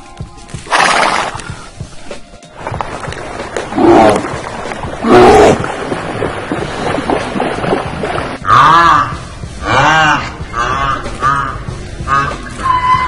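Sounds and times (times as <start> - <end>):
rushing water: 0.5 - 10.4.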